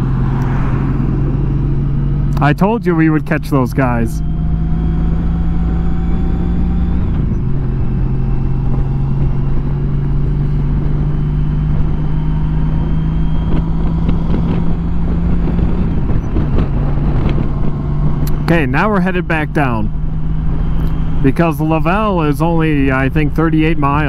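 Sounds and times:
wind rush: 0:00.0 - 0:02.3, 0:04.2 - 0:18.6
motorcycle engine hum: 0:00.0 - 0:24.0.

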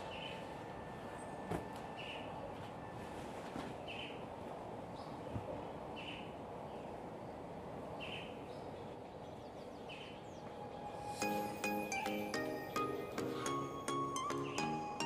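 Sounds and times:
steady background noise: 0:00.0 - 0:15.0
music with ringing notes: 0:10.7 - 0:15.0.

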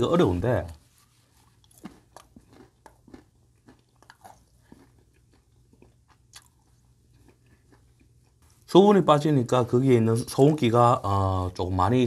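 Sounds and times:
crunchy chewing: 0:00.2 - 0:08.7.

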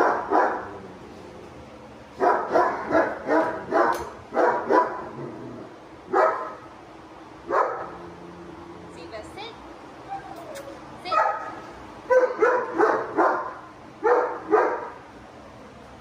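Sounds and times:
dog barking: 0:00.0 - 0:00.7, 0:02.2 - 0:05.1, 0:06.1 - 0:06.6, 0:07.5 - 0:08.0, 0:11.1 - 0:15.0.

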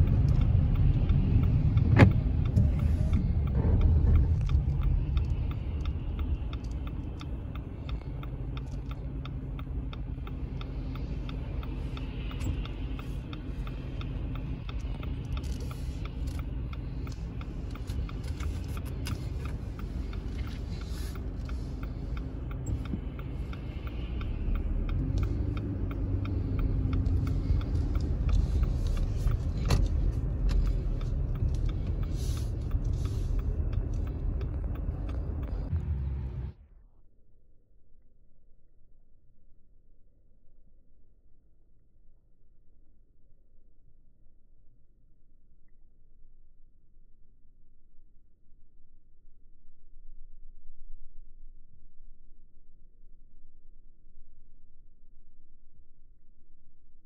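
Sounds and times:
car engine and tyre rumble: 0:00.0 - 0:37.1.

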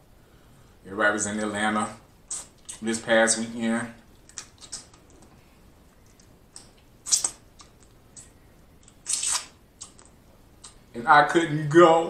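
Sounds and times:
eating crawfish wet clicks: 0:04.2 - 0:05.3, 0:06.0 - 0:10.8.

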